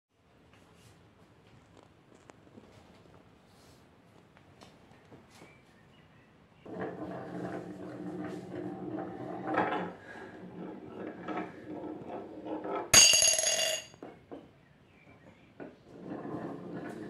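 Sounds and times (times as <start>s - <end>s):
marble rolling on wooden track: 6.6s - 14.5s, 15.2s - 17.0s
marble clinking into glass: 13.0s - 14.0s.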